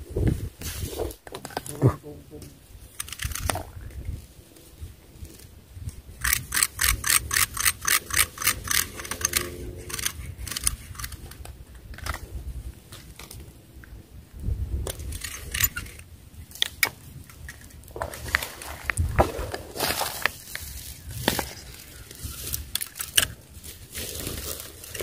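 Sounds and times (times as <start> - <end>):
wind rumble on microphone: 0.0 - 25.0
fishing reel clicking: 6.2 - 11.2.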